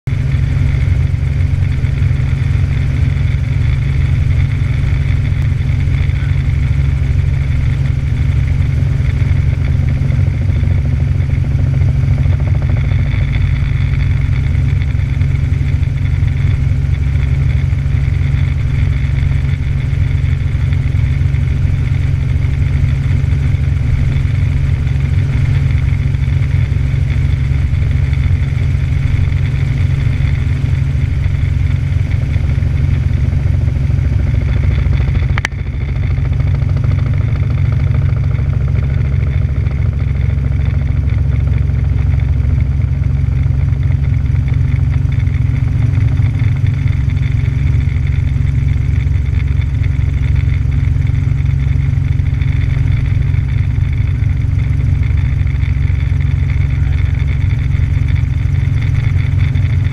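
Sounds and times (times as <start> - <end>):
helicopter engine and rotor drone: 0.1 - 59.9.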